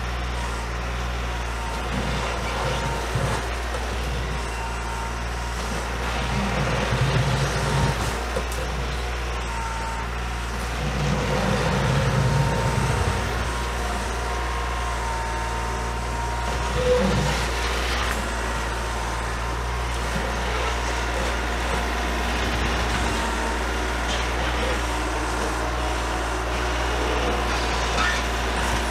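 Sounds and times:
tractor diesel engine running: 0.0s - 28.9s.

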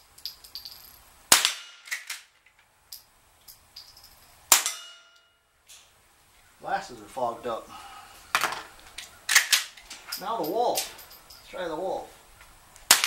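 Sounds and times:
sharp rifle shots: 1.3s - 2.2s, 4.5s - 5.1s.

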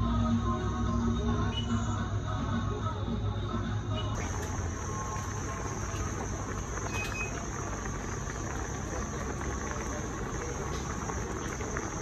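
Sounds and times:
water boiling hard in a pot: 4.2s - 12.0s.

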